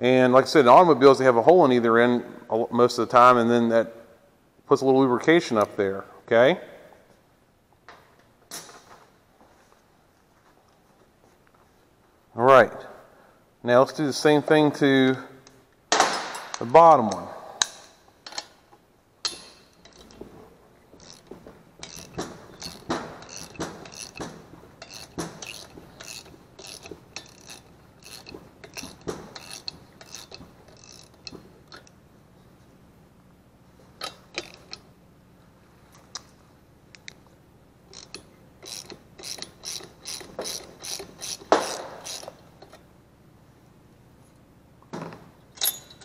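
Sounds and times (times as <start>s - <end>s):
socket ratchet clicking: 21.0s - 31.9s, 34.0s - 34.8s, 37.9s - 42.8s.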